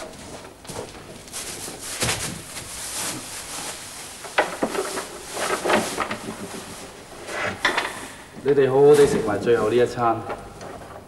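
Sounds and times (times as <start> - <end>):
shuffling on straw floor: 0.0 - 7.1
wooden knocks and clatters: 4.2 - 9.4.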